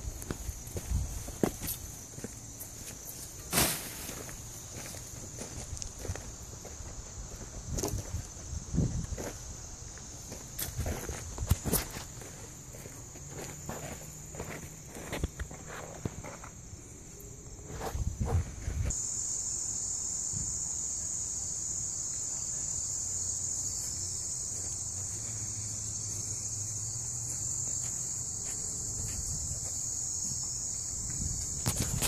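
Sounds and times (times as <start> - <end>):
footsteps: 0.0 - 8.4, 10.3 - 16.6, 27.2 - 30.5
insects chorus: 0.0 - 32.0.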